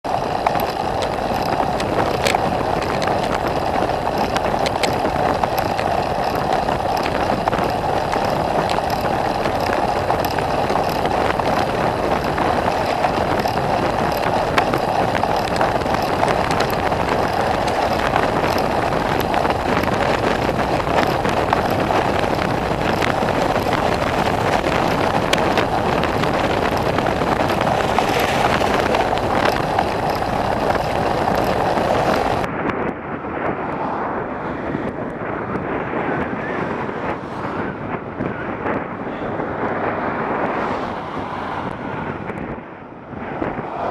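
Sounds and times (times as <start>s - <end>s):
bicycle tyre on tarmac: 0.0s - 43.9s
wind on microphone: 0.0s - 43.9s.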